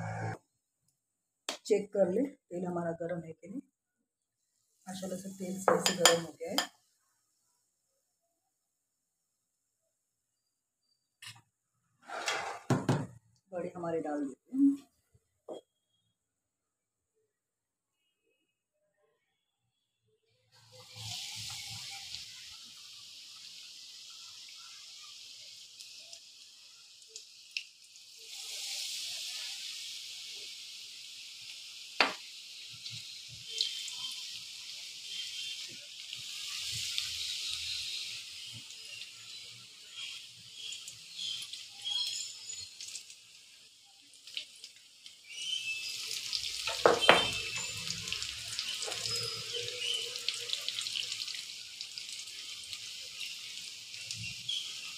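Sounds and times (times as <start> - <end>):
deep-frying sizzle in oil: 4.0 - 7.4, 20.4 - 54.9.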